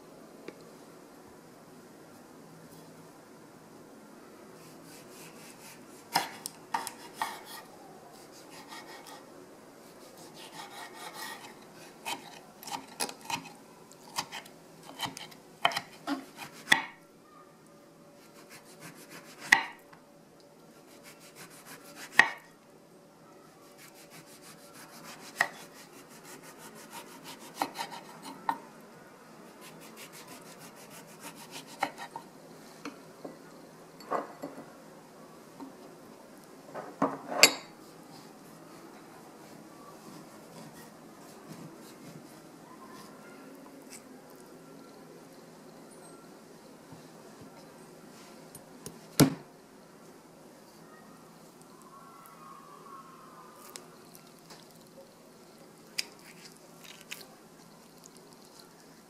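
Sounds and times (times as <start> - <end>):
knife slicing fruit: 4.6 - 9.2, 9.8 - 17.0, 20.9 - 22.4, 23.8 - 28.4, 29.6 - 32.2.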